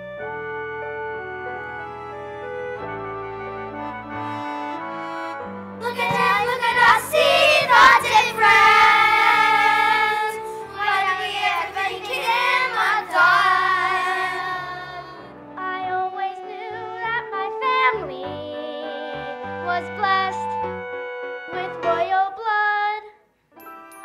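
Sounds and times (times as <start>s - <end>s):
instrumental accompaniment: 0.0s - 22.1s
children singing: 5.8s - 15.3s.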